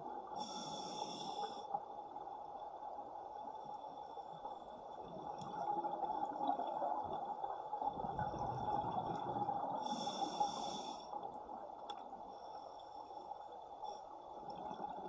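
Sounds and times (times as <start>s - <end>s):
hissing breath through regulator: 0.4s - 1.7s, 9.8s - 11.2s
exhaled bubbles rumbling underwater: 1.8s - 12.2s, 14.3s - 15.0s.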